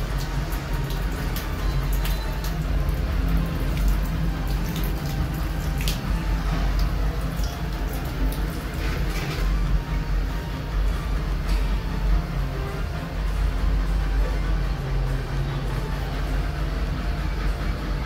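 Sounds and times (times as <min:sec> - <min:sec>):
water splashing on tiled floor: 0:00.0 - 0:09.6
steady low hum: 0:00.0 - 0:18.0.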